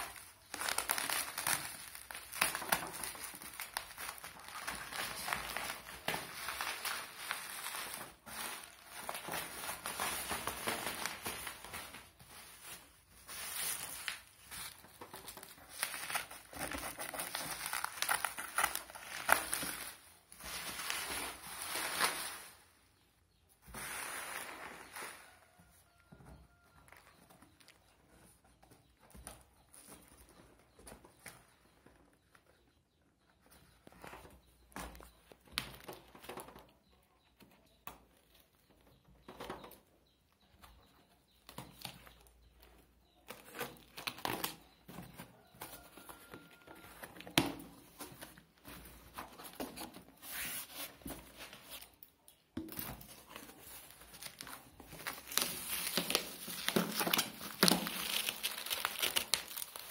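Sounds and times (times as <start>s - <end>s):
packing tape tearing: 0.0s - 12.0s, 13.4s - 20.0s, 52.8s - 59.9s
bubble wrap crinkling: 0.0s - 22.9s, 23.7s - 27.8s, 43.2s - 59.9s.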